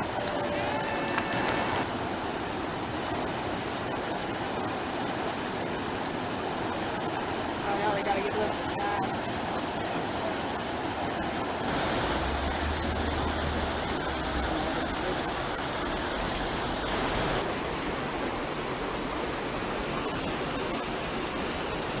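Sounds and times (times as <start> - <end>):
river rapids rushing: 0.0 - 22.0.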